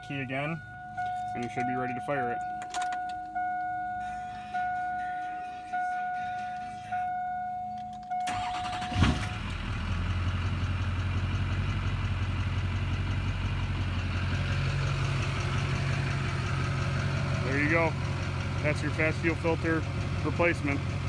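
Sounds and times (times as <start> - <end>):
dashboard warning chime: 0.0 - 9.5
diesel engine starting and idling: 0.0 - 21.0.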